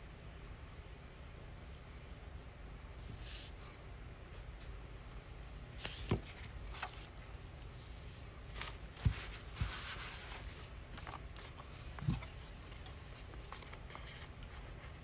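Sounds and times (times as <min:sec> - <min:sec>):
paper rustling and rubbing: 0:05.8 - 0:15.0.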